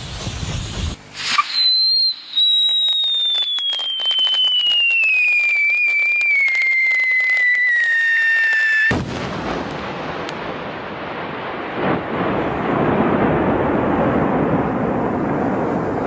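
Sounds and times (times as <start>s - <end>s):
firecracker crackling: 0.0s - 16.0s
firecracker whistle falling in pitch: 1.2s - 9.1s.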